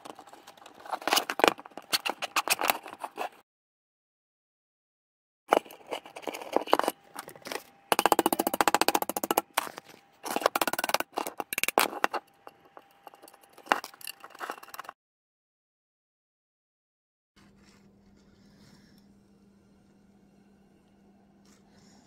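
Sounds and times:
metal pins clicking and scraping: 5.5s - 15.0s.

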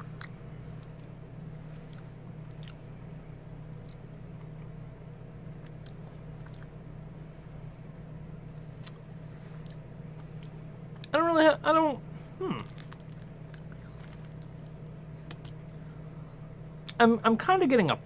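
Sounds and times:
steady low hum: 0.0s - 18.0s
candy cane crunching: 12.4s - 15.8s.

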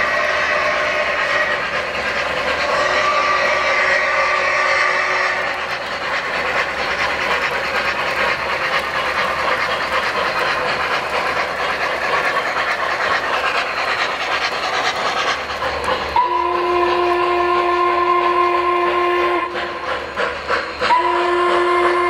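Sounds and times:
train whistle: 0.0s - 1.9s, 2.6s - 5.7s, 16.1s - 20.0s, 20.8s - 22.0s
model train wheels clicking: 0.0s - 22.0s.

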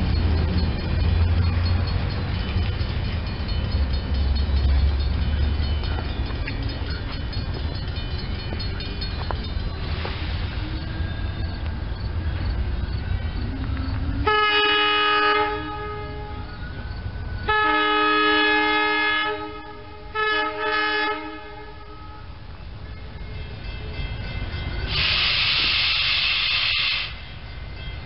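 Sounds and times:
loud hiss of approaching train: 8.1s - 28.0s
train air horn blasts: 14.2s - 16.6s, 17.4s - 22.4s, 24.9s - 27.3s.

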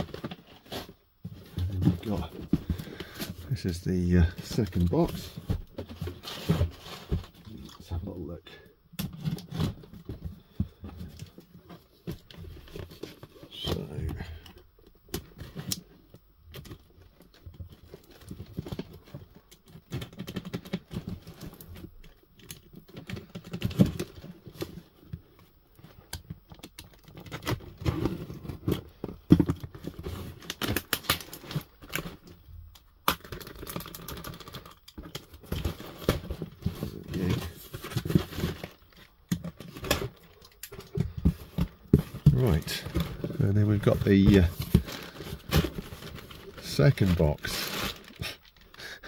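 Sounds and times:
cardboard knocking and rustling: 35.0s - 46.5s
tape tearing: 43.8s - 48.7s.

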